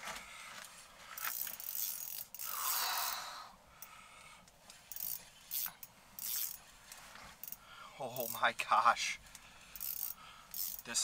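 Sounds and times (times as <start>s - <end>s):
fishing reel whirring and clicking: 1.2s - 3.9s, 4.9s - 6.6s, 7.4s - 7.6s, 8.2s - 8.4s, 9.8s - 11.0s.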